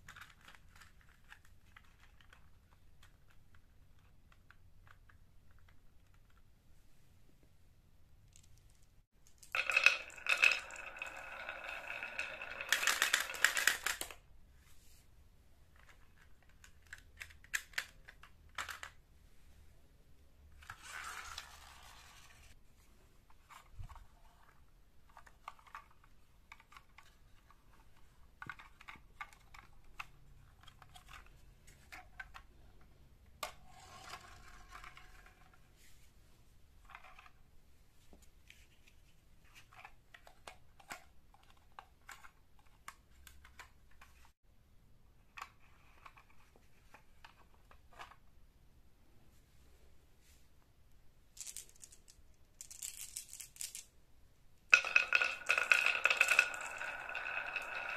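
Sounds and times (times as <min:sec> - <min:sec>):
marbles clattering: 0:08.3 - 0:14.2, 0:51.4 - 0:53.9, 0:54.7 - 0:57.9
toys clicking and knocking: 0:08.3 - 0:14.2
toy truck wheels rolling: 0:09.4 - 0:14.2, 0:33.4 - 0:35.6.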